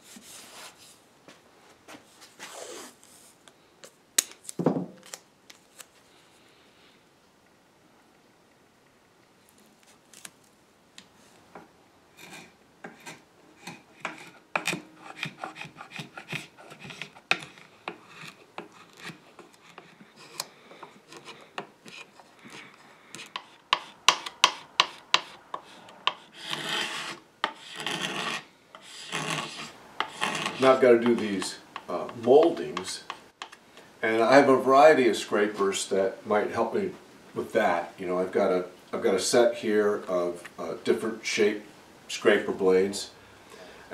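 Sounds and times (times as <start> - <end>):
hand scraper rasping on wood: 12.2 - 33.2.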